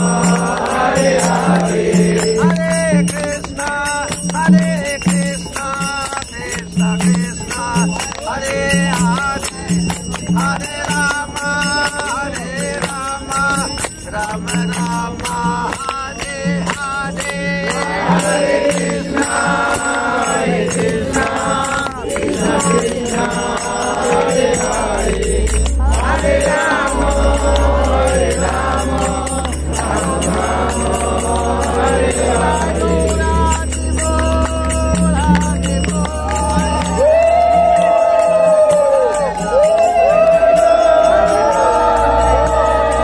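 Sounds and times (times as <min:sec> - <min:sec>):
group singing a devotional chant: 0:00.0 - 0:43.0
hands clapping in time: 0:00.0 - 0:43.0
low steady rumble: 0:22.2 - 0:38.9.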